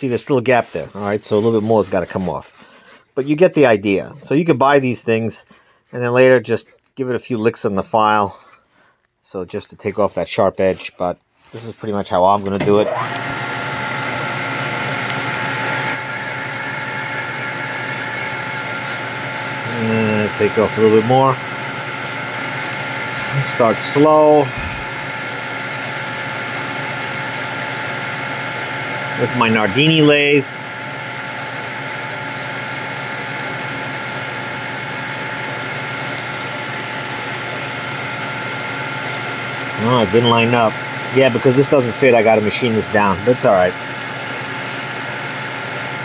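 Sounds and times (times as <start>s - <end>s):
metal lathe humming: 11.7s - 46.0s.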